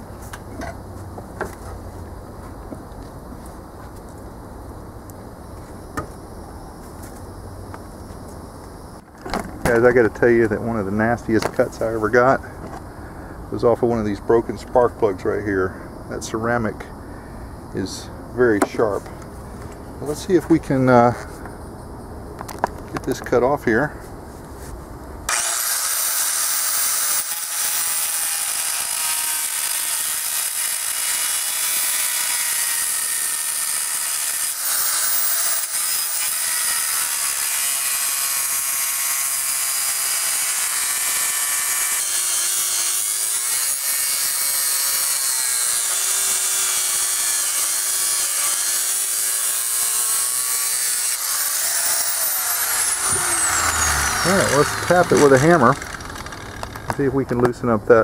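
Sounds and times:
angle grinder cutting steel: 25.3s - 57.0s.

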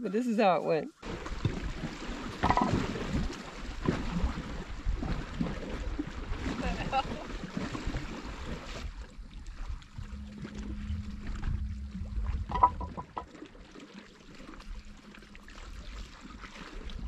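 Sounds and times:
small waves lapping on rocks: 1.0s - 9.9s
wind rumble on microphone: 2.4s - 13.3s
steady low hum: 9.8s - 13.4s.

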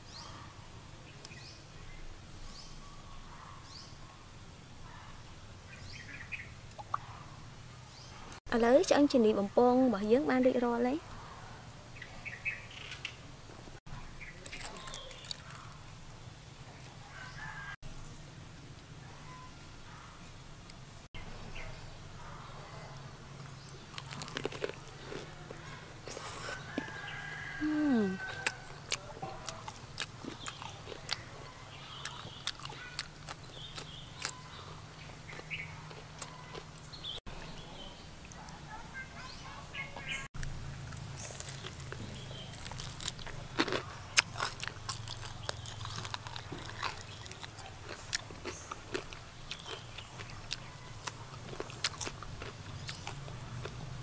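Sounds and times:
person chewing with mouth clicks: 14.4s - 15.8s, 23.9s - 26.9s, 27.9s - 34.4s, 40.9s - 53.8s
bird chirps: 19.2s - 19.7s.

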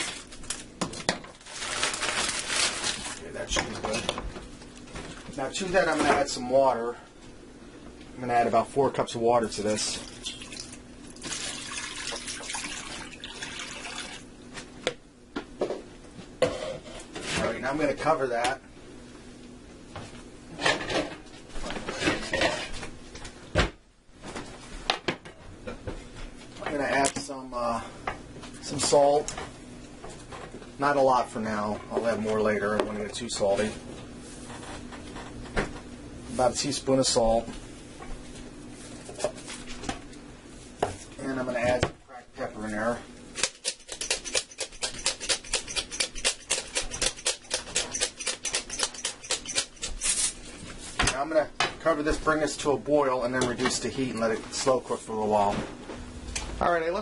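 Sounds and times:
pepper mill grinding: 43.4s - 50.4s.

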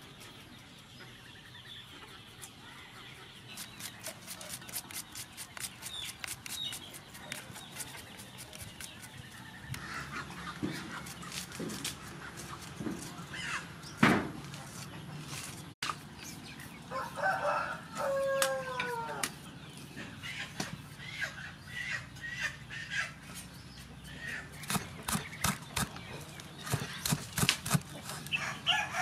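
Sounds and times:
chickens clucking: 0.0s - 29.0s
rooster crowing: 16.9s - 19.3s, 28.3s - 29.0s.

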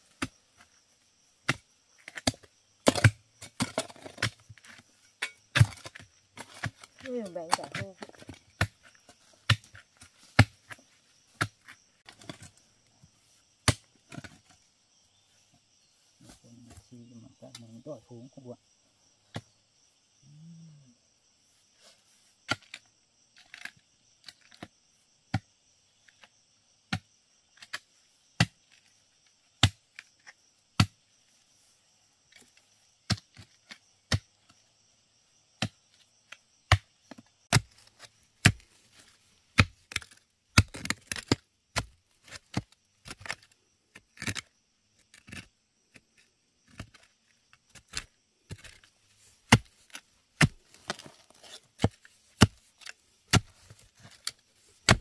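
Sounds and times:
blade chopping wood: 1.4s - 4.4s, 13.6s - 14.3s, 29.6s - 29.8s, 36.7s - 44.5s, 47.7s - 48.9s, 49.5s - 55.0s.

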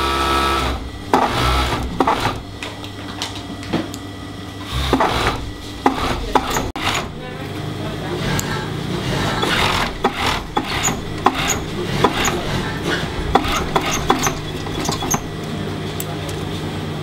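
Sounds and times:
sewing machine motor hum: 0.0s - 3.1s, 4.6s - 15.8s
sewing machine clicks and ticks: 9.4s - 12.4s.

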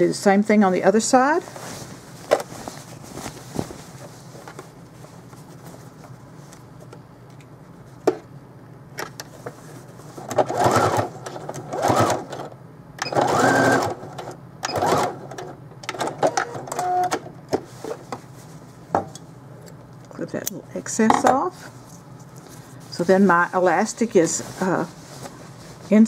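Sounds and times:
sewing machine stitching: 10.3s - 17.0s.

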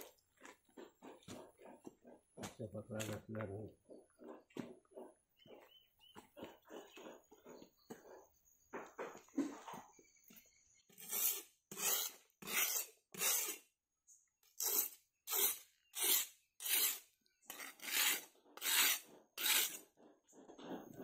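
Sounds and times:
rasping strokes: 10.9s - 13.7s, 14.4s - 20.0s.

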